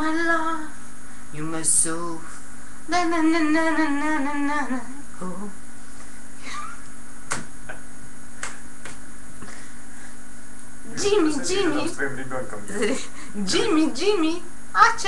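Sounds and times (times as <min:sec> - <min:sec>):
woman singing wordlessly: 0:00.0 - 0:00.8, 0:01.4 - 0:02.3, 0:02.9 - 0:05.6, 0:10.9 - 0:12.0, 0:13.4 - 0:15.0.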